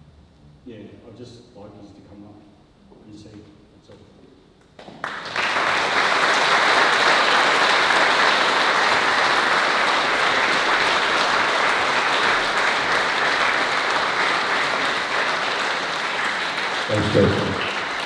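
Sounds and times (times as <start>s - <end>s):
audience applauding: 4.8s - 18.0s.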